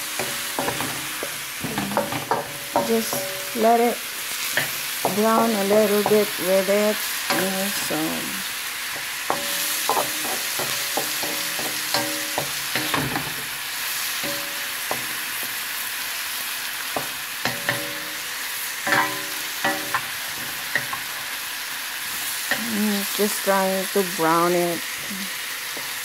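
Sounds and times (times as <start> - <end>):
spoon knocking and scraping pan: 0.0 - 6.5, 8.8 - 15.8, 16.8 - 21.3, 25.7 - 26.0
chicken and onion sizzling: 0.0 - 26.0.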